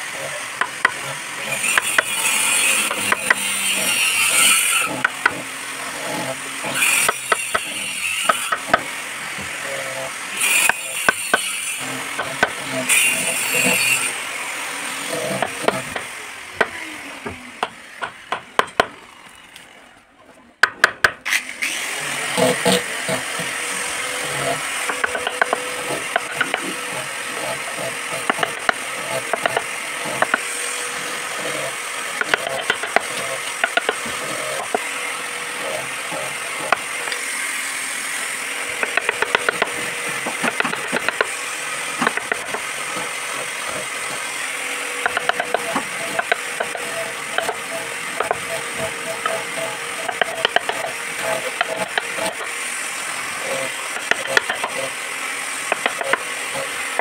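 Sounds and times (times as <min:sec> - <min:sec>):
chisel scraping wood: 0:00.2 - 0:14.2, 0:14.8 - 0:18.9, 0:22.0 - 0:37.4, 0:38.0 - 0:57.0
wood chips clicking: 0:24.8 - 0:26.9, 0:45.0 - 0:52.6, 0:53.5 - 0:54.9.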